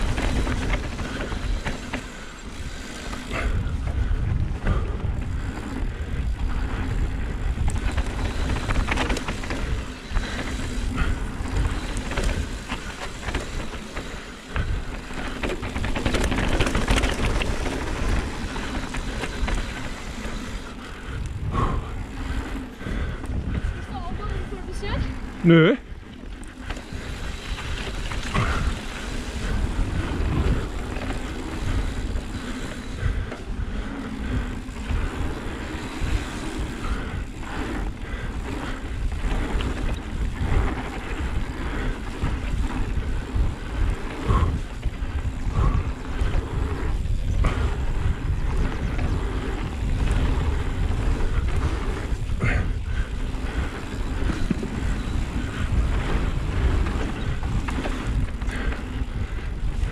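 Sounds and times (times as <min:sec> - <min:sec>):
bike tyres rolling on dirt: 0:00.0 - 0:59.9
wind buffeting microphone: 0:00.0 - 0:59.9
bike knocking over bumps: 0:48.6 - 0:56.0.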